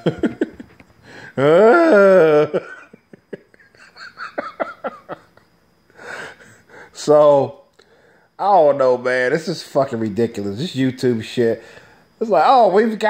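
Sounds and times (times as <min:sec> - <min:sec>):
man's drawn-out vocal sound: 0:01.4 - 0:02.6.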